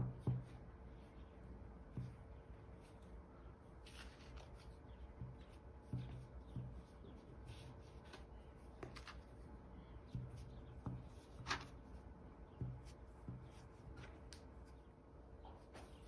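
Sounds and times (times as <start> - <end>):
soft dough thumps: 0.0 - 0.8, 1.7 - 3.2, 4.3 - 9.2, 10.0 - 14.7.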